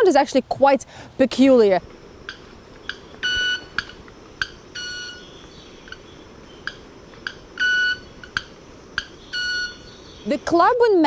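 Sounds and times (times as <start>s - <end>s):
bird wing ticks: 1.8s - 9.2s
high ringing tone: 2.3s - 6.1s, 6.7s - 10.0s.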